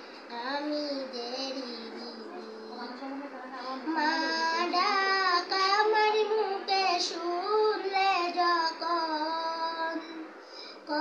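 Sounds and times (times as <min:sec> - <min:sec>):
girl singing: 0:00.3 - 0:10.2.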